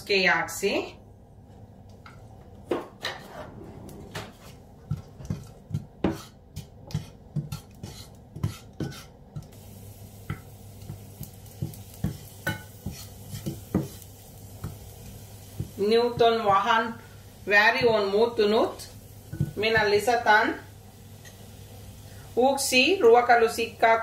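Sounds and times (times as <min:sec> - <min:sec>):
garlic sizzling in oil: 0:06.1 - 0:24.0
wooden spatula knocking in a pan: 0:11.6 - 0:14.0.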